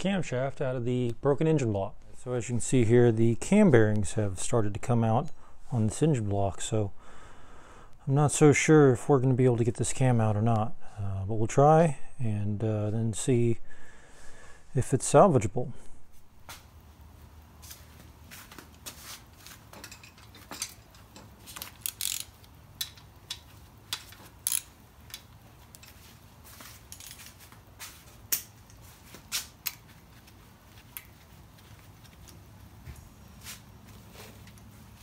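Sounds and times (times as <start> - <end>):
metal tools clinking: 19.6 - 27.6.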